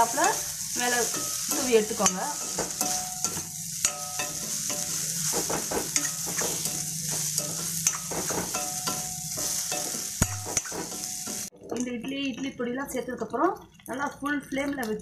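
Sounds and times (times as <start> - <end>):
metal spatula scraping a pan: 0.0 - 11.5
oil sizzling: 0.0 - 15.0.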